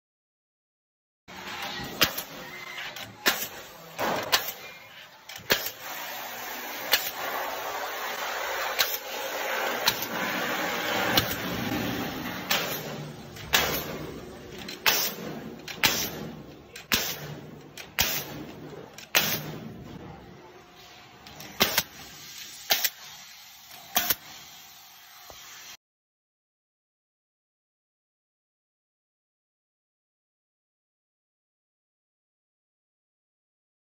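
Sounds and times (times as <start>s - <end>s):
pneumatic nail gun shots: 1.6s - 19.9s, 21.2s - 24.6s.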